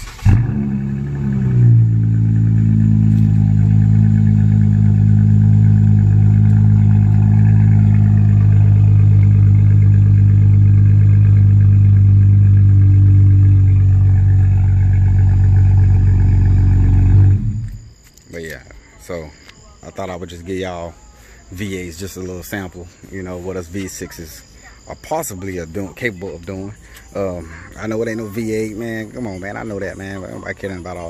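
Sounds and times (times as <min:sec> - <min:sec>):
car engine idling: 0:00.0 - 0:18.0.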